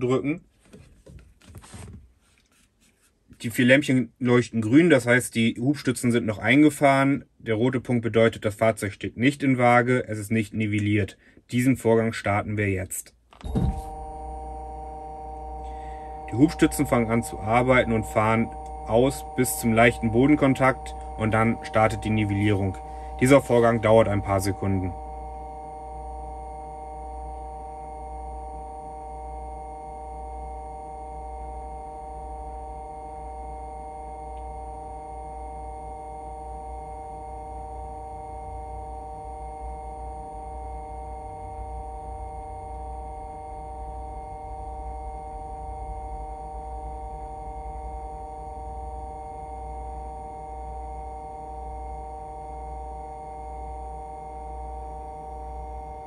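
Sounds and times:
hydraulic pump humming and whining: 13.4 - 55.9.

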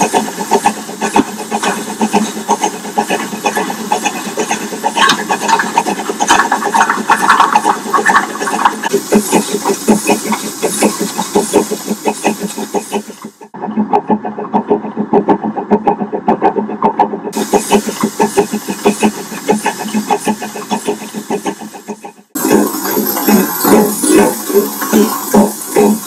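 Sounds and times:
steam hiss and clatter: 0.0 - 26.0
steam locomotive chuffing: 0.0 - 26.0.

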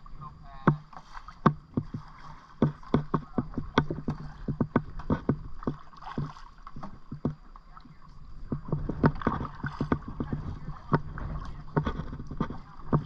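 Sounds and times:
paddle strokes on water: 0.0 - 13.0
sharp clicks and knocks: 2.6 - 7.4.

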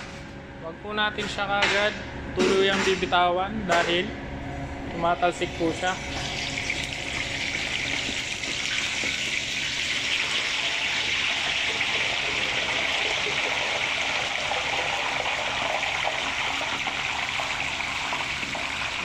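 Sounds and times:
duck sizzling in hot oil: 6.2 - 19.0.

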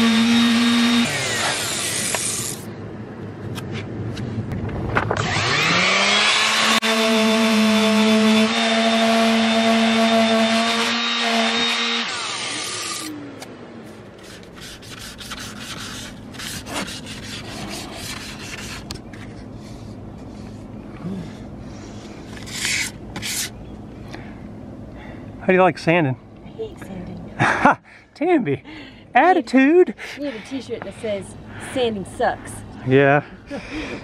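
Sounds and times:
electric sander whining: 0.0 - 2.6, 5.2 - 13.2
scratchy rubbing: 13.9 - 19.4.

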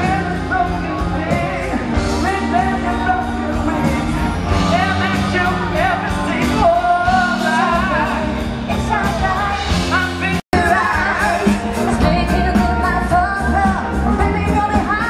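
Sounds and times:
lead singer's voice: 0.0 - 15.0
live pop-rock band: 0.0 - 15.0.

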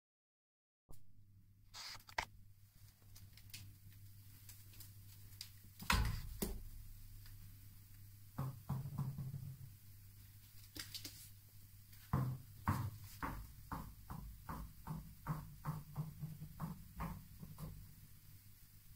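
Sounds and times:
ball bouncing on stairs: 8.4 - 9.7, 12.0 - 18.0.

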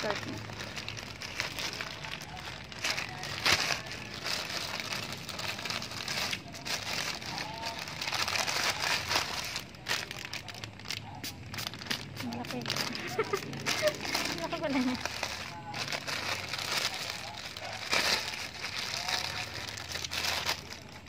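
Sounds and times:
plastic bag crinkling: 0.0 - 21.0.

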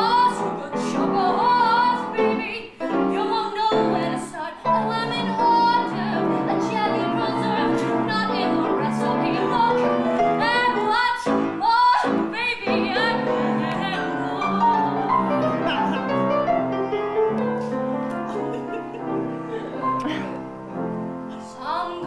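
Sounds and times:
woman singing operatically: 0.0 - 16.0, 21.4 - 22.0
piano accompaniment: 0.0 - 22.0.

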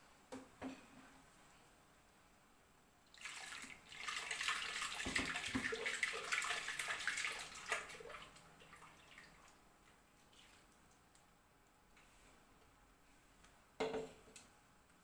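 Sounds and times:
thick sauce pouring and splashing: 3.1 - 9.6.

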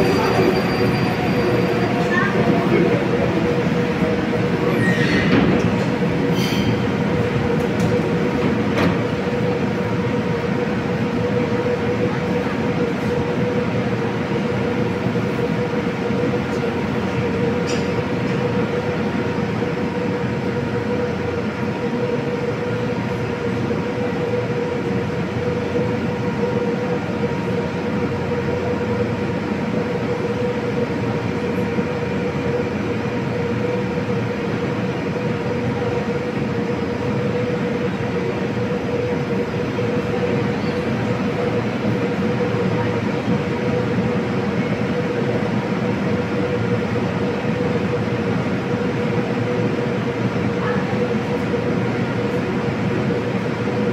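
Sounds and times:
echoing station rumble: 0.0 - 53.9
train electrical hum: 0.0 - 53.9.

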